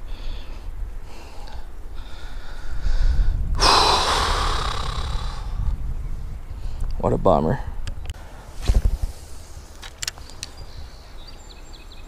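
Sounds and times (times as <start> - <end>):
man breathing hard: 0.0 - 5.7
man sighing: 3.6 - 5.7.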